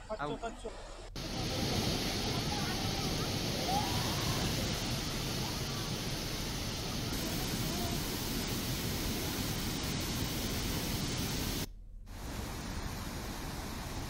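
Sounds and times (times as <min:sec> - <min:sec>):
faint voices: 0:01.2 - 0:08.6
rushing water: 0:01.2 - 0:14.0.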